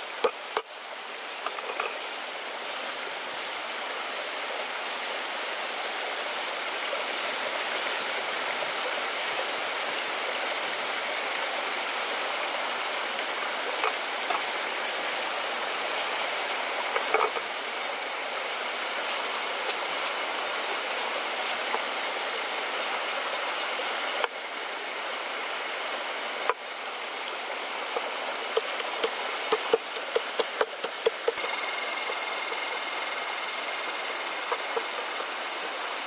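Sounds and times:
stream rushing over rocks: 0:00.0 - 0:36.0
pestle pounding in wooden mortar: 0:28.5 - 0:31.4.

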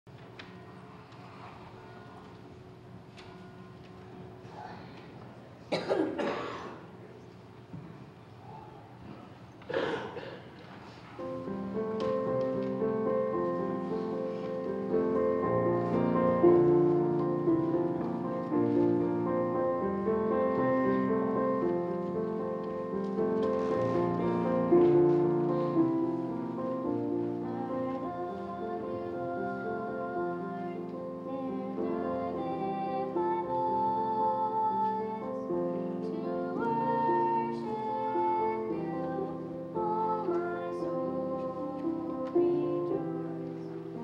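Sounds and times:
short cough or rustle: 0:05.7 - 0:06.9, 0:09.7 - 0:10.6
keyboard playing slow chords: 0:11.2 - 0:44.0.

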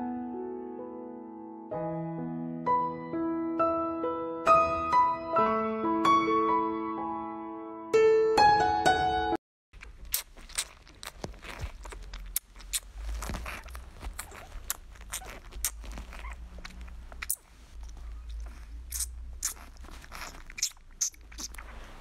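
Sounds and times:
puppy sucking and smacking: 0:09.8 - 0:22.0.

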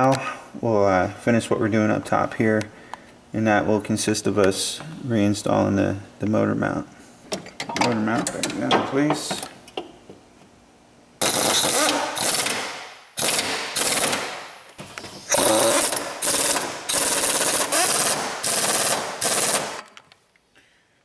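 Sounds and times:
impact wrench hammering: 0:11.2 - 0:14.5, 0:15.3 - 0:19.9.

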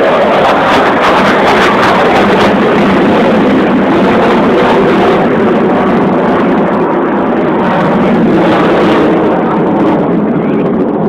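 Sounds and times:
jet engine roar: 0:00.0 - 0:11.0.

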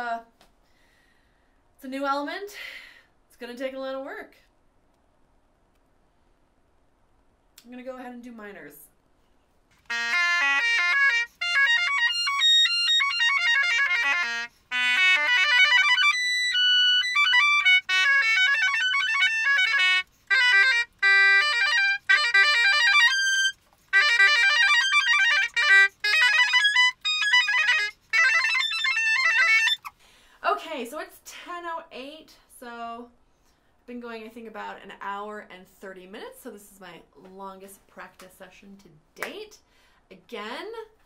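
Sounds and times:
bassoon playing arpeggios: 0:09.9 - 0:29.9.

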